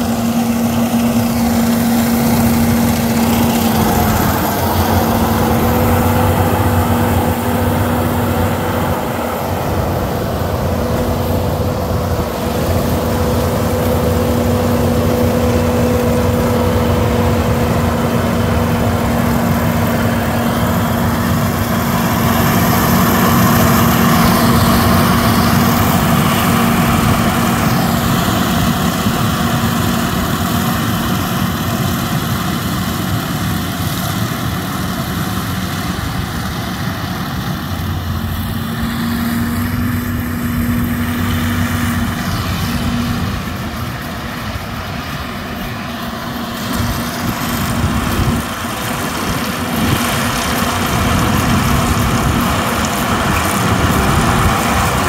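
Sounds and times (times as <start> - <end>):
combine harvester engine drone: 0.0 - 55.0.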